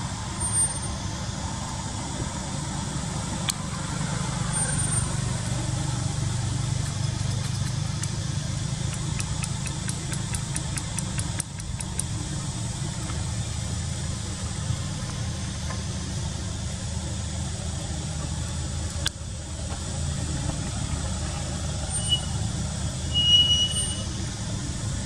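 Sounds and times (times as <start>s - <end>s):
engine idling: 0.0s - 25.0s
faint clicks: 6.8s - 12.4s.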